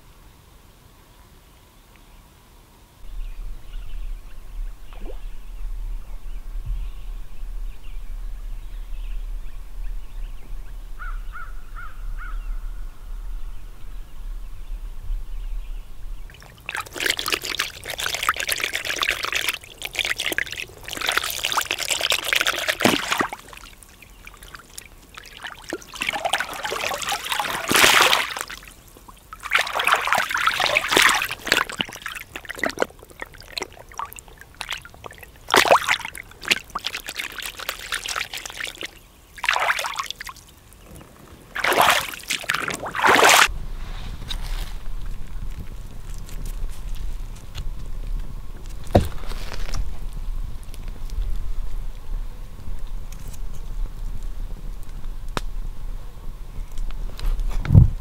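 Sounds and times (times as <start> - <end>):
steady low rumble: 3.0 - 16.4
hands splashing in shallow water: 16.3 - 40.6, 41.5 - 43.5.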